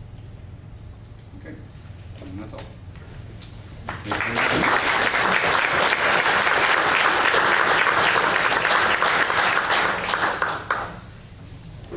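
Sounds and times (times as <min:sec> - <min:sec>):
audience applauding: 0:03.9 - 0:11.1.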